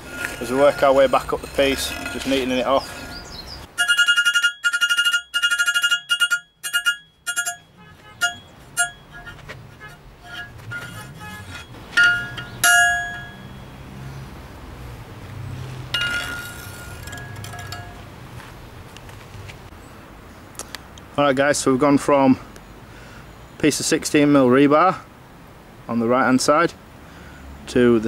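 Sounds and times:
hammer striking metal on anvil: 0:11.6 - 0:13.6.

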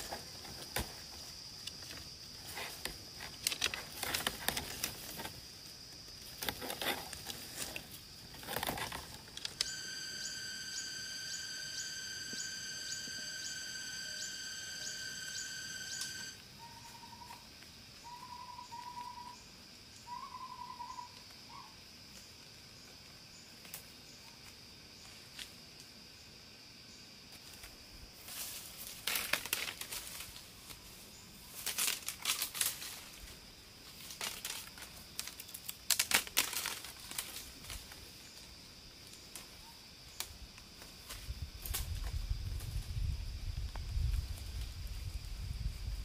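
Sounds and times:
rustling and crinkling: 0:00.0 - 0:09.8, 0:27.3 - 0:39.6
high thin tone: 0:09.6 - 0:16.4.

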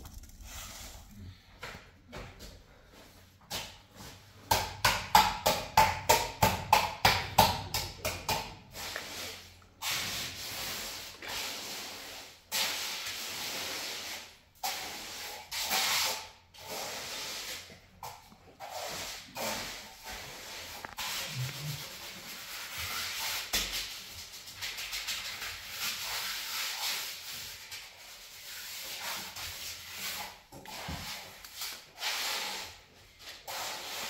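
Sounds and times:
trowel scraping wet cement: 0:08.8 - 0:24.0.

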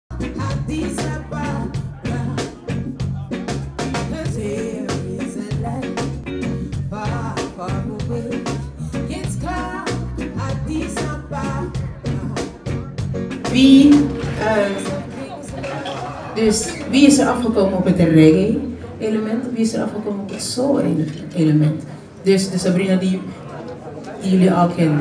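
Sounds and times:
woman singing: 0:00.1 - 0:02.6, 0:04.1 - 0:06.2, 0:06.8 - 0:12.6, 0:13.5 - 0:15.7
bass line: 0:00.1 - 0:18.8
reggae band playing: 0:00.1 - 0:20.0.

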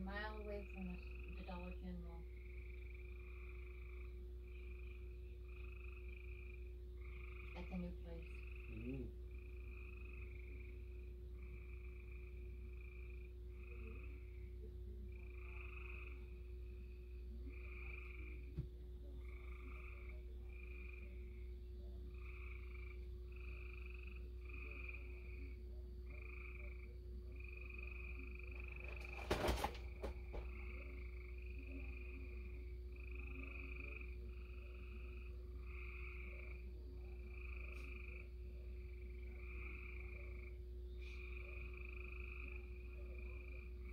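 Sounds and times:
frogs calling: 0:00.0 - 0:43.9
steady low hum: 0:00.0 - 0:43.9
clatter of knocks: 0:28.8 - 0:30.5.

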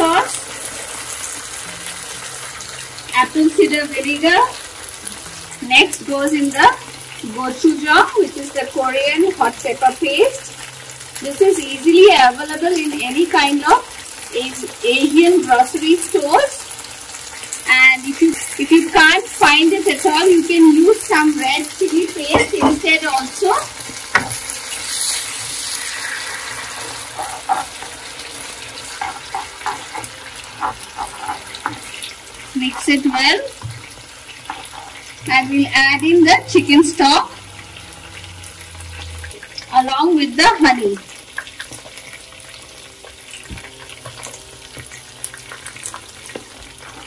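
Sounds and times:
sauce sizzling in hot oil: 0:00.0 - 0:47.0
utensil scraping a pan: 0:23.8 - 0:33.0, 0:33.8 - 0:35.2
utensil clicking against pan: 0:28.9 - 0:32.1.

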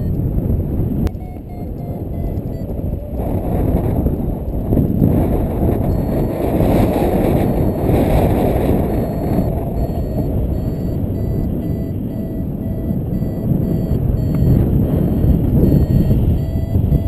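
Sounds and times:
variometer beeping in short pulses: 0:00.0 - 0:00.2, 0:01.0 - 0:03.2, 0:05.7 - 0:14.6, 0:15.2 - 0:17.0
wind buffeting the microphone: 0:00.0 - 0:17.0.

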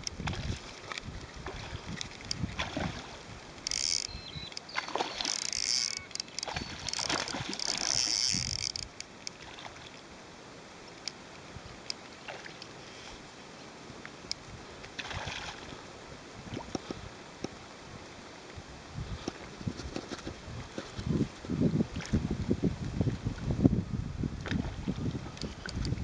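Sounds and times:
fish splashing at water surface: 0:01.4 - 0:09.9
high rasping bursts: 0:05.2 - 0:08.8.

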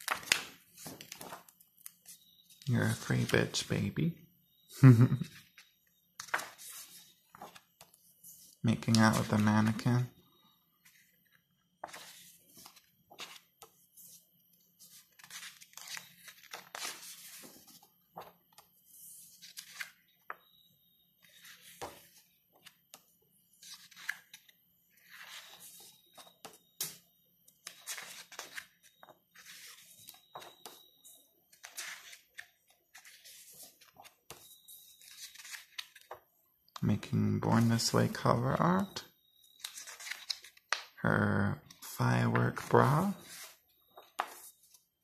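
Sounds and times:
book pages turning: 0:00.0 - 0:03.4, 0:05.3 - 0:20.5, 0:21.2 - 0:36.3, 0:36.9 - 0:40.9, 0:41.7 - 0:44.9.

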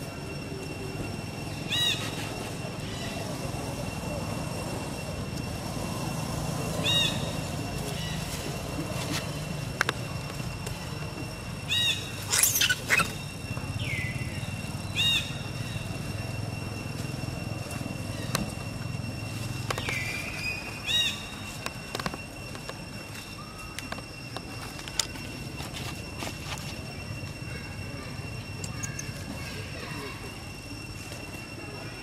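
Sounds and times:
falling whistles: 0:00.0 - 0:32.0
sharp high squeal: 0:00.0 - 0:32.0
steady high whine: 0:00.0 - 0:32.0
short chirping calls: 0:06.7 - 0:09.6, 0:11.6 - 0:16.5, 0:18.0 - 0:21.7.

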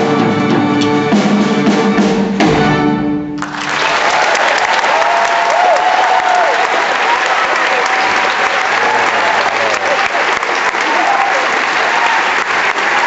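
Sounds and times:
audience applauding: 0:03.4 - 0:13.0
cheers and whoops: 0:03.6 - 0:13.0.

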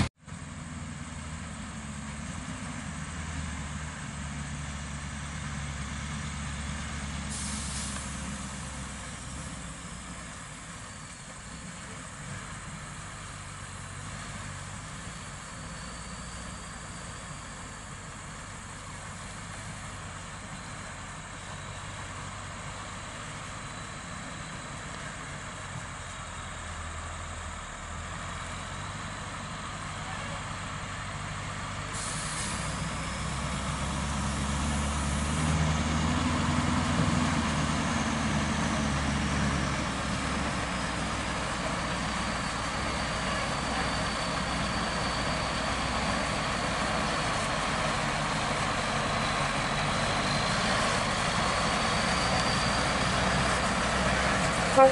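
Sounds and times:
truck diesel engine under load: 0:00.0 - 0:54.9
air brake hiss: 0:07.2 - 0:08.7, 0:31.9 - 0:33.0.

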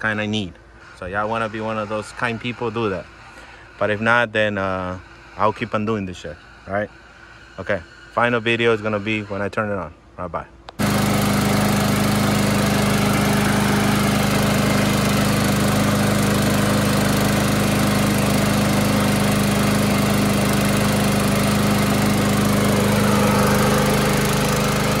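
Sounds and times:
lawn mower engine running: 0:10.8 - 0:25.0.

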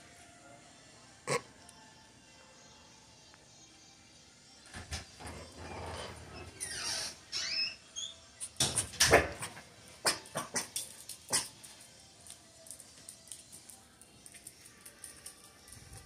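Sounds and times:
puppies squeaking: 0:06.3 - 0:08.6.

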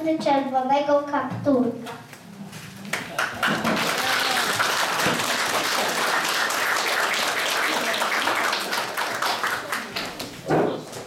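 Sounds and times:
audience applauding: 0:02.9 - 0:10.5.

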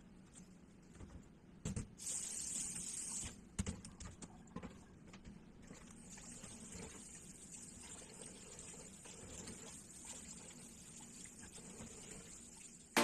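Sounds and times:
tap water running: 0:05.7 - 0:13.0.

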